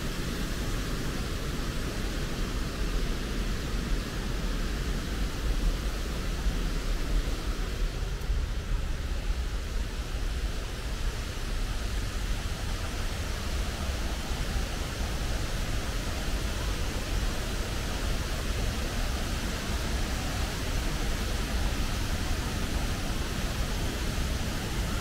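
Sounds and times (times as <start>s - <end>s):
waterfall roaring: 0.0s - 25.0s.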